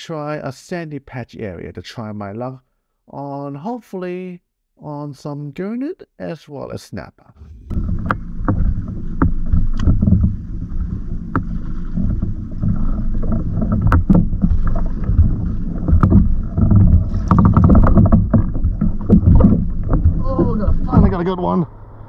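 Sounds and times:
sharp knocks and clicks: 7.4 - 21.2
sea lapping against kayak hull: 7.4 - 21.3
wind buffeting microphone: 7.4 - 21.5.

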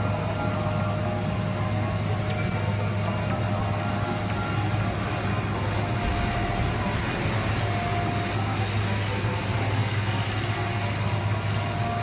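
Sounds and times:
machinery engine drone: 0.0 - 12.0
hiss: 2.3 - 12.0.

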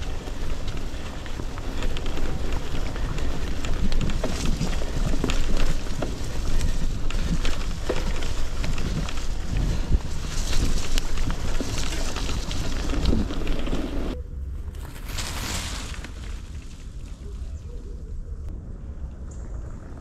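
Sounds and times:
wind buffeting microphone: 0.0 - 14.3
bike clicks and rattles: 0.0 - 15.2
bike tyres rolling on dirt: 0.0 - 20.0.

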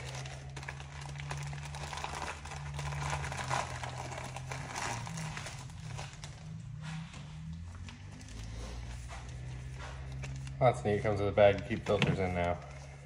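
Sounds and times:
plastic packaging crinkling: 0.0 - 6.7
low steady hum: 0.0 - 13.0.

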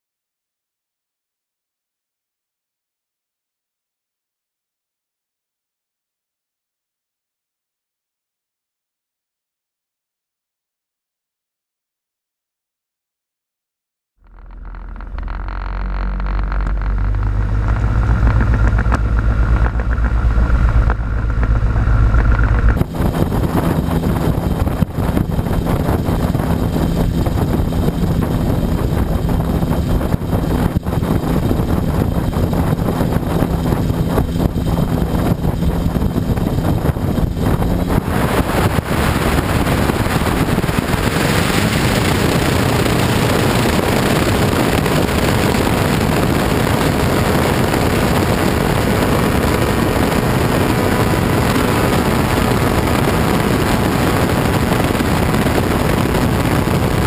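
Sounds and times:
ultralight engine and propeller: 14.2 - 57.0
wind rushing on microphone: 14.2 - 57.0.

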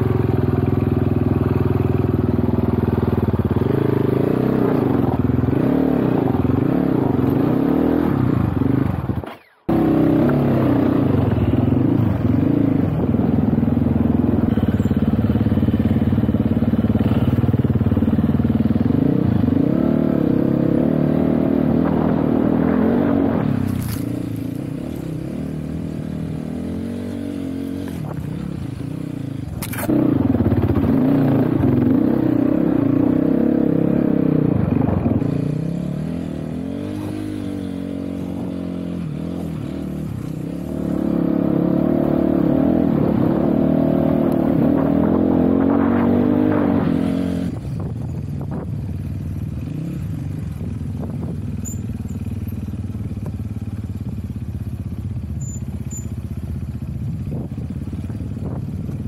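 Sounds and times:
dirt bike engine revving: 13.8 - 47.6.

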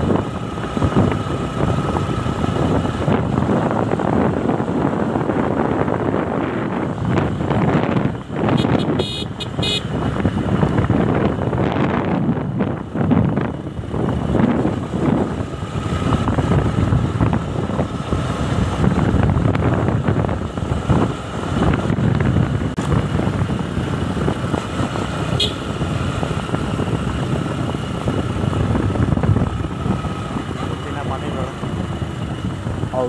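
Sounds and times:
wind buffeting the microphone: 0.0 - 9.0, 9.8 - 33.0
motorcycle engine: 0.0 - 33.0.

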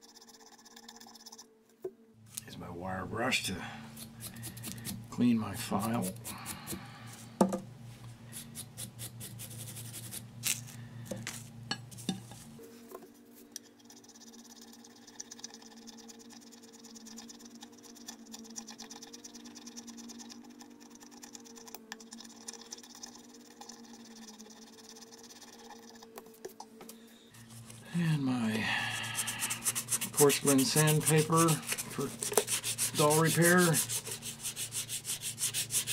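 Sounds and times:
steady low hum: 0.1 - 35.9
file rasping putty: 4.0 - 5.0, 29.0 - 35.9
wire brush scraping metal file: 4.0 - 6.8, 8.3 - 10.7, 28.7 - 35.9.

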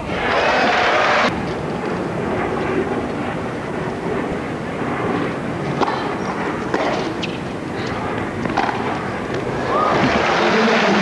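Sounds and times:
racket hitting tennis ball: 5.7 - 6.1, 8.5 - 8.9.

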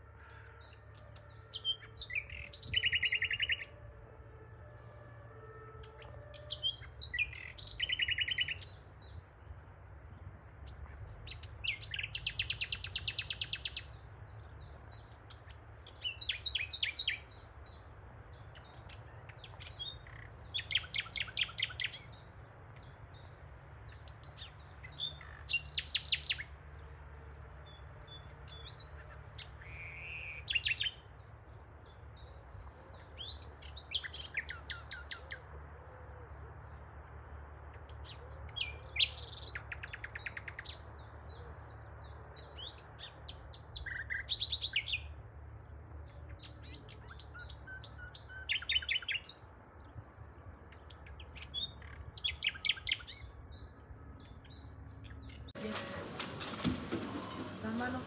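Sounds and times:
songbird singing trilled notes: 0.6 - 3.7, 5.8 - 26.6, 27.7 - 35.4, 37.4 - 49.4, 50.4 - 55.8.

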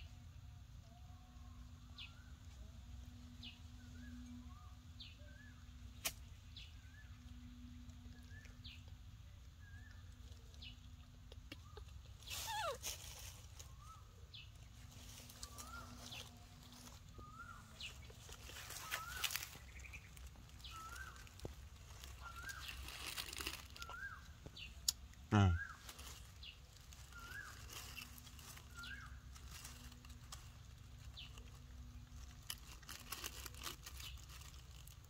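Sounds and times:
small animal chirps: 9.6 - 14.1, 15.0 - 26.1.

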